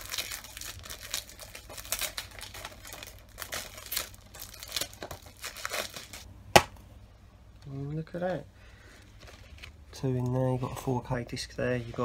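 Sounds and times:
plastic shrink wrap crinkling: 0:00.0 - 0:06.3.

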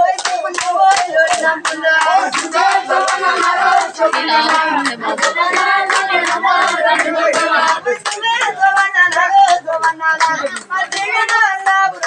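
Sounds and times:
men clapping in rhythm: 0:00.0 - 0:12.0
voices singing together: 0:00.0 - 0:12.0.

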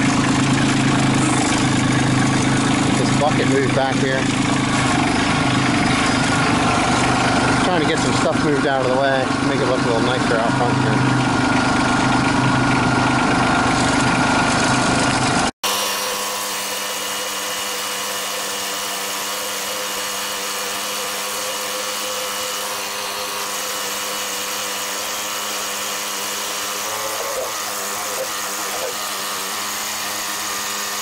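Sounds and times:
diesel tractor engine running: 0:00.0 - 0:15.6.

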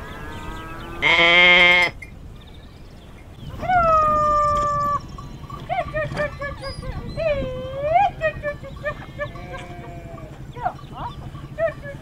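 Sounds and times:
dog whining and whimpering: 0:05.8 - 0:09.9.

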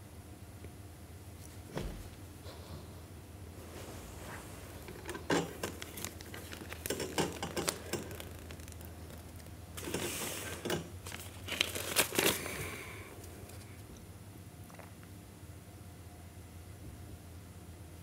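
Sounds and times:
paper crinkling and rustling: 0:03.6 - 0:13.9
envelope tearing: 0:05.4 - 0:12.8.

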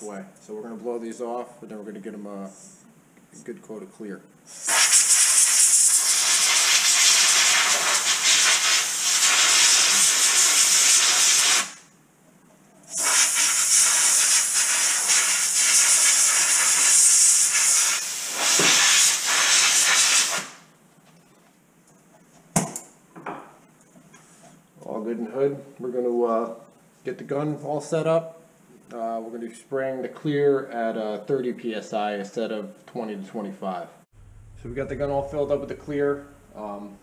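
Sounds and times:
compressed air blow gun hissing: 0:04.5 - 0:11.8, 0:12.9 - 0:20.6.

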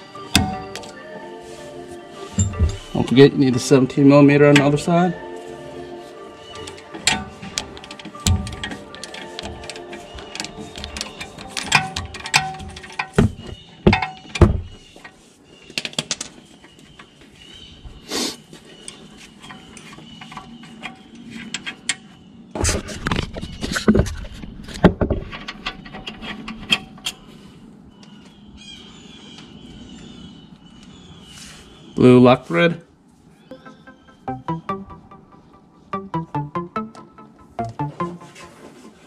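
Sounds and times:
tools and parts knocking: 0:02.4 - 0:02.9, 0:06.6 - 0:15.2.

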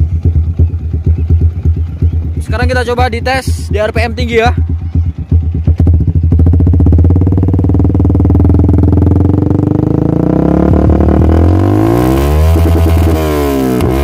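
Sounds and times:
motorcycle engine revving hard: 0:04.6 - 0:14.0.

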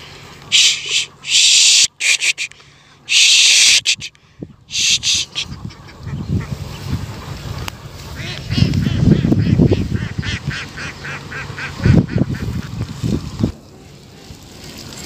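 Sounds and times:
person hissing shh: 0:00.5 - 0:04.1, 0:04.7 - 0:05.4
ducks quacking: 0:00.5 - 0:13.0.

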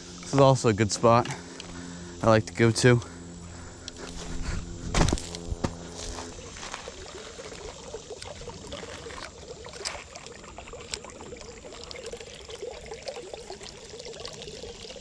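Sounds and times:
creek water trickling over rocks: 0:05.2 - 0:15.0.

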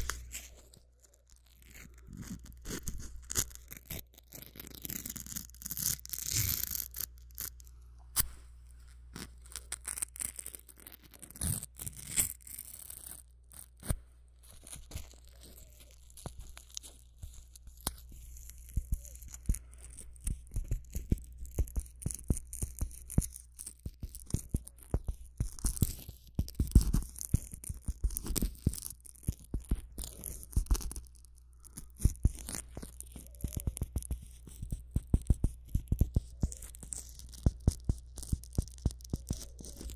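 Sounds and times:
small objects clicking and scraping: 0:00.0 - 0:39.9.

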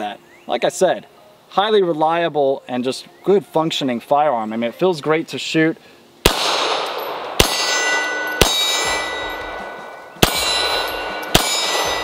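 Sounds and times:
pistol shots: 0:06.2 - 0:12.0
steel targets ringing: 0:06.4 - 0:12.0.

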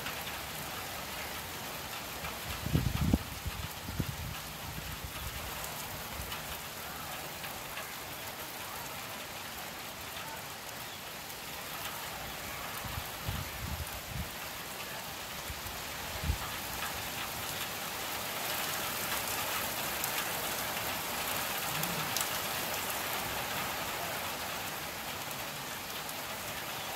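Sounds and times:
steady rain falling: 0:00.0 - 0:26.9.

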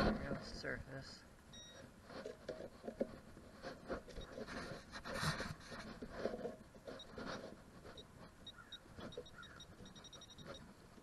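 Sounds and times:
scratching and rustling of soil: 0:00.0 - 0:11.0.

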